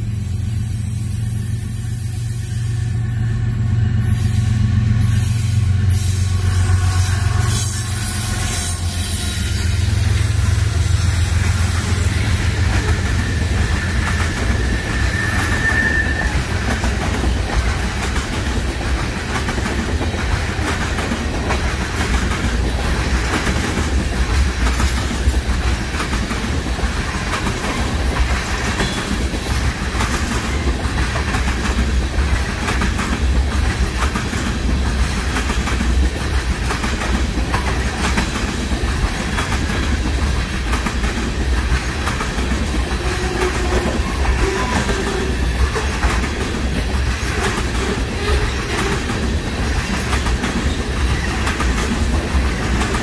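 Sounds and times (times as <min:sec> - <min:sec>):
freight train rolling past: 0:00.0 - 0:53.0
high wheel squeal: 0:00.1 - 0:18.0, 0:42.9 - 0:46.1
wheels clicking over rail joints: 0:16.2 - 0:53.0.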